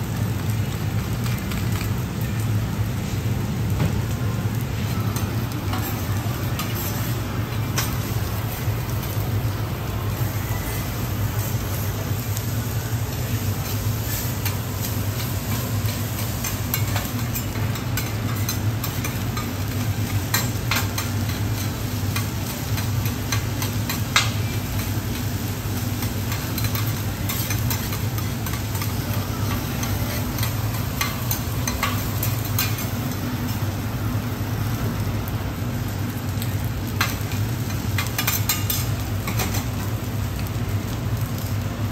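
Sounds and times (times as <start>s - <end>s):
rice sizzling on a griddle: 0.0s - 41.9s
metal spatulas scraping and tapping: 13.6s - 24.6s, 26.0s - 32.9s, 38.0s - 39.7s.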